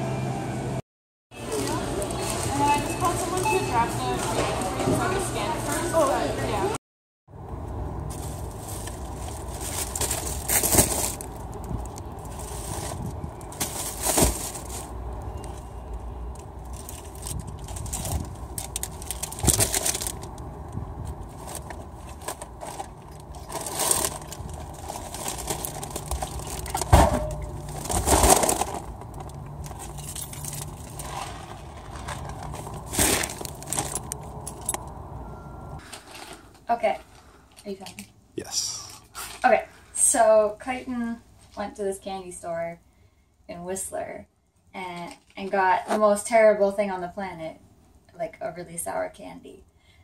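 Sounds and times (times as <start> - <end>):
bags and boxes set down: 8.1 - 11.3, 12.4 - 14.9, 21.5 - 28.9, 29.8 - 34.7
tote bags rustling: 8.1 - 15.7, 21.2 - 26.9, 27.5 - 34.8.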